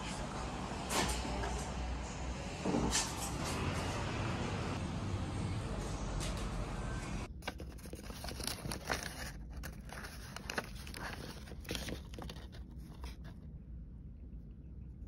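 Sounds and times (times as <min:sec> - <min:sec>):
paper wrapper crinkling: 0:07.3 - 0:13.4.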